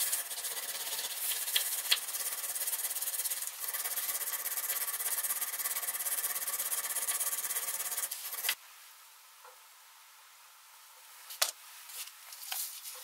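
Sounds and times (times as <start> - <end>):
hand file rasping on steel: 0.0 - 8.6.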